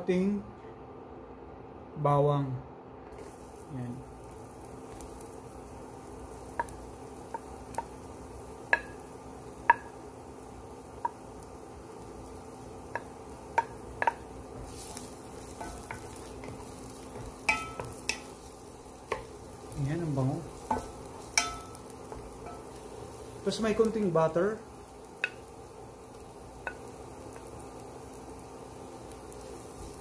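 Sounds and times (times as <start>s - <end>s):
garlic sizzling in oil: 3.1s - 30.0s
wooden spatula tapping pot: 6.5s - 8.0s, 8.7s - 9.0s, 9.6s - 9.9s, 11.0s - 11.2s, 12.9s - 14.8s, 15.4s - 18.3s, 20.5s - 22.8s, 25.2s - 25.4s, 26.6s - 27.5s.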